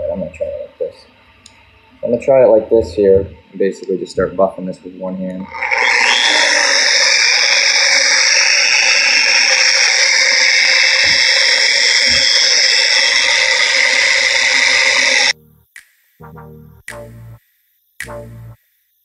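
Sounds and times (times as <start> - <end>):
mini polisher running: 5.5 - 15.4.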